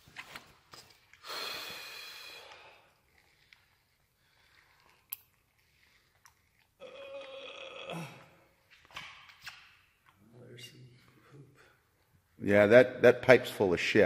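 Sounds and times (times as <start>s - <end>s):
faint handling sounds: 0.0s - 1.2s, 2.5s - 6.8s.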